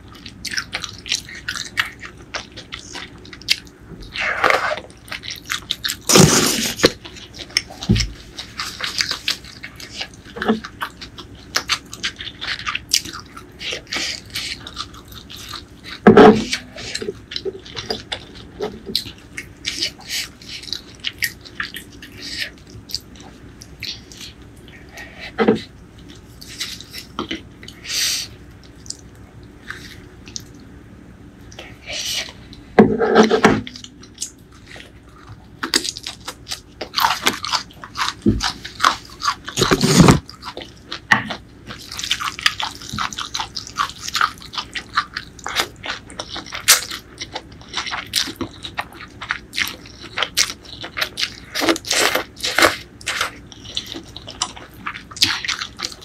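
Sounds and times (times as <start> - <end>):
crunching raw vegetables: 0.0 - 56.0
slurping noodles: 6.1 - 6.9.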